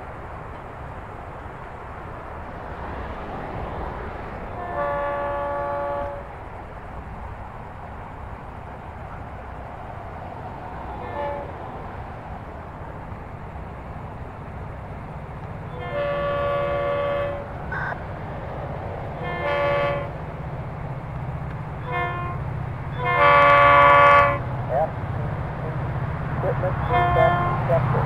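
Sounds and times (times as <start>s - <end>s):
low diesel engine rumble: 0.0s - 28.0s
locomotive air horn blasts: 4.6s - 6.3s, 11.0s - 11.5s, 15.7s - 18.0s, 19.2s - 20.2s, 21.8s - 24.5s, 26.7s - 27.9s.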